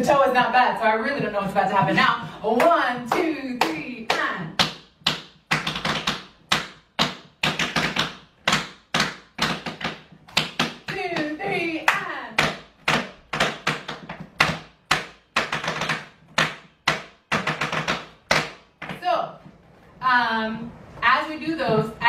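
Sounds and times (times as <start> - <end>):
tap shoes on wooden board: 1.1 - 19.5
person's voice: 10.9 - 12.4, 20.0 - 22.0.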